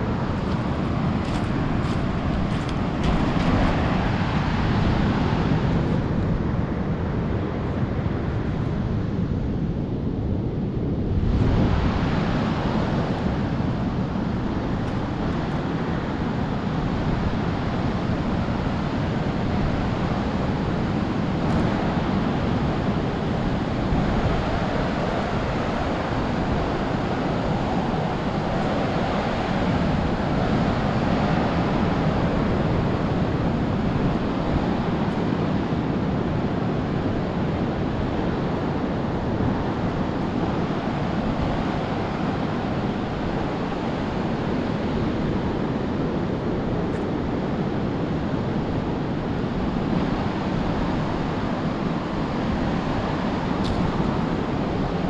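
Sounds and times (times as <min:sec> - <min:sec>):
surf breaking on beach: 0:00.0 - 0:06.6
wind buffeting microphone: 0:00.0 - 0:55.0.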